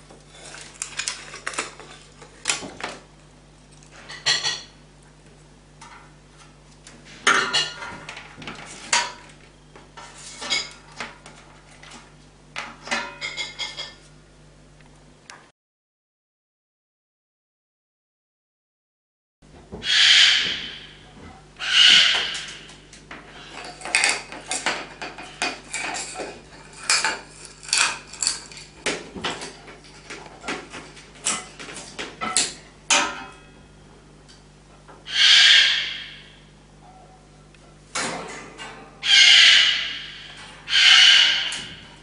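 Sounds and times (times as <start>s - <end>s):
cockatoo screeching: 19.8s - 22.8s, 35.0s - 36.5s, 39.0s - 42.0s.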